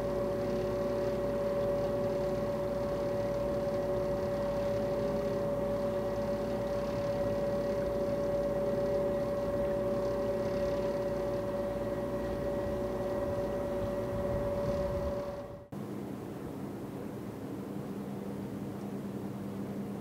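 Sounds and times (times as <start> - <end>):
ferry machinery droning hum: 0.0 - 20.0
steady whine: 0.0 - 20.0.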